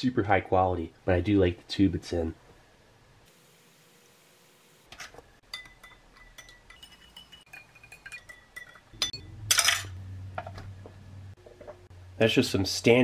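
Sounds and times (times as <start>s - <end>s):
spoon clinking against cup: 5.5s - 9.8s.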